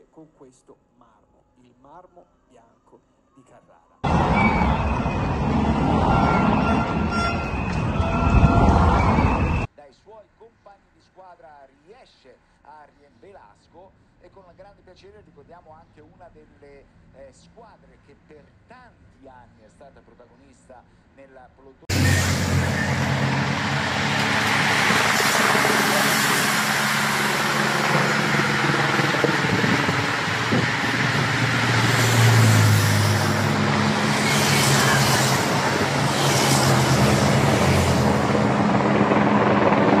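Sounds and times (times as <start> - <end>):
motorcycle and car engines passing: 21.9 - 36.1
bicycles passing: 21.9 - 38.1.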